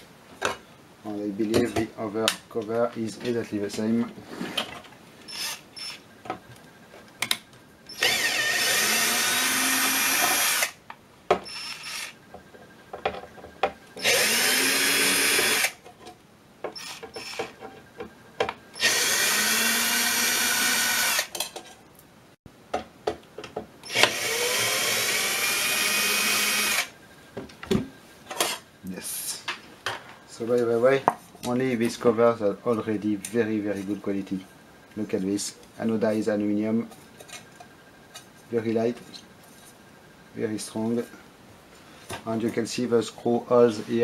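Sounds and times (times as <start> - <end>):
cordless drill motor spinning: 5.3 - 6.0, 7.9 - 10.8, 11.4 - 12.2, 14.0 - 15.8, 16.7 - 17.6, 18.8 - 21.3, 23.8 - 26.9
drill bit clicks: 7.9 - 10.8, 18.8 - 21.3.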